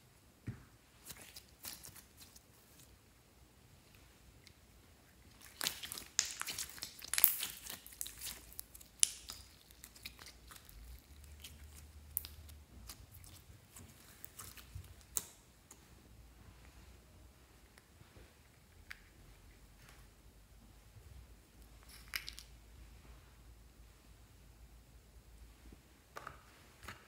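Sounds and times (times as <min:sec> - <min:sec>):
slime squelching and popping: 0:05.3 - 0:15.4.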